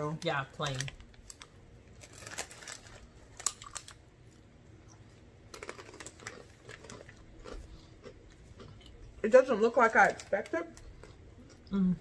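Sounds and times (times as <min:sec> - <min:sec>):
crackly clicks of snack bag: 0:00.1 - 0:04.4, 0:05.5 - 0:07.6, 0:09.9 - 0:10.9.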